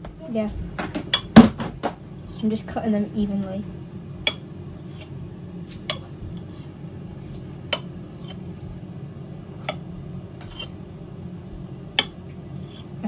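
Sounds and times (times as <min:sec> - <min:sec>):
knife cutting dough: 0:05.8 - 0:08.4, 0:09.6 - 0:10.8.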